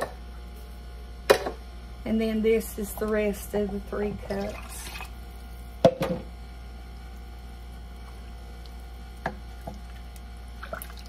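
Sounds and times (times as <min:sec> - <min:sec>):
water pouring into a pot: 0:04.3 - 0:05.2, 0:08.1 - 0:11.0
wooden spoon stirring soup: 0:07.0 - 0:11.0.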